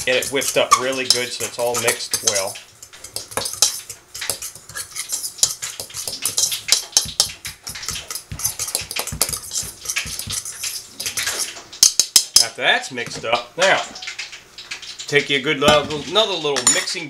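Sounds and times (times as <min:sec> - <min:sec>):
metal utensil whisking in metal bowl: 0:00.0 - 0:13.4.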